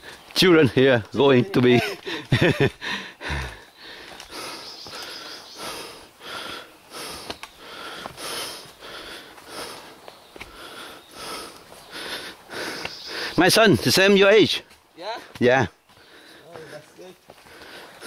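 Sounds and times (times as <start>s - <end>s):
fast heavy breathing: 2.0s - 13.4s, 15.2s - 18.0s.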